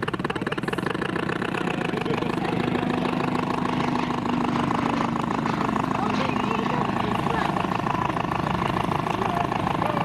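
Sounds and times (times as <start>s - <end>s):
small model engine running: 0.0s - 10.0s.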